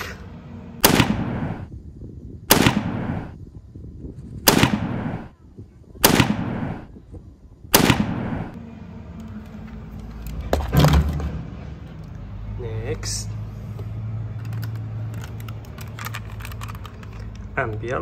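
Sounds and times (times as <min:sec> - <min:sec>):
artillery blasts with rumble: 0:00.8 - 0:01.7, 0:02.4 - 0:03.4, 0:04.4 - 0:05.3, 0:06.0 - 0:07.0, 0:07.7 - 0:08.6.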